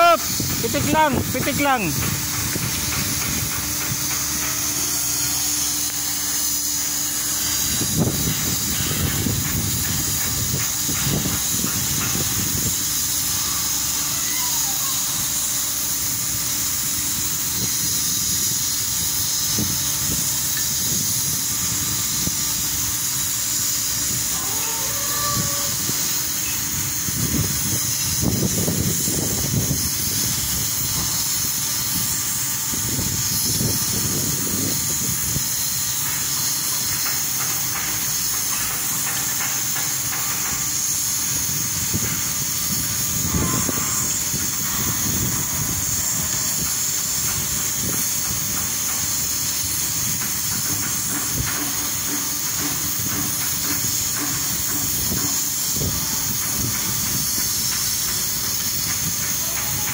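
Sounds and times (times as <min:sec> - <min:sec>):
wind buffeting microphone: 0:00.2 - 0:04.4, 0:07.6 - 0:13.0, 0:24.1 - 0:35.6, 0:41.3 - 0:52.0.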